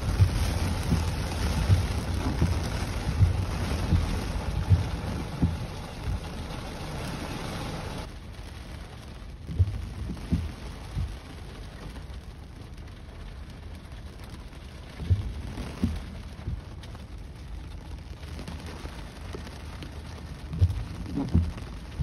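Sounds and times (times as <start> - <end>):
low thumps: 0.0 - 8.0, 14.9 - 16.8
heavy rain on car roof: 0.0 - 22.0.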